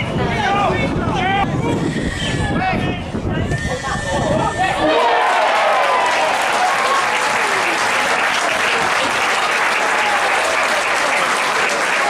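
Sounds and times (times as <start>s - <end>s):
people shouting: 4.6s - 7.6s
crowd applauding and cheering: 4.8s - 12.0s.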